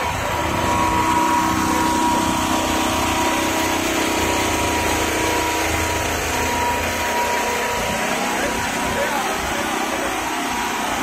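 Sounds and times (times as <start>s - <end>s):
vehicle engines running: 0.0s - 11.0s.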